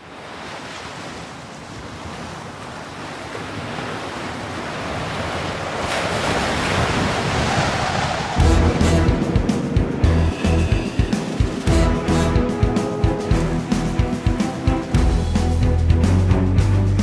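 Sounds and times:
sea surf: 0:00.0 - 0:17.0
wind: 0:00.0 - 0:17.0.

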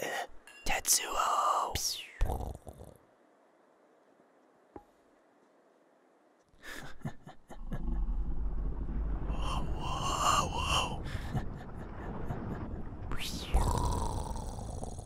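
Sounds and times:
low steady rumble: 0:06.8 - 0:15.0.

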